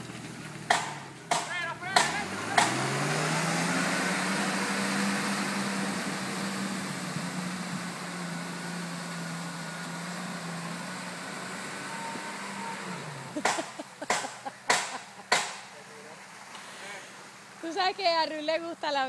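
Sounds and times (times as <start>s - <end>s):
car engine running: 0.0s - 17.9s
sharp knocks: 0.7s - 2.8s, 13.4s - 15.7s.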